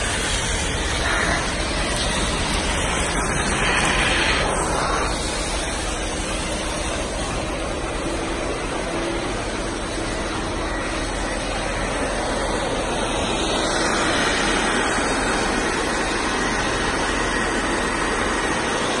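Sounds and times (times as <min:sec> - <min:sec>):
wet vacuum sucking water: 0:00.0 - 0:19.0.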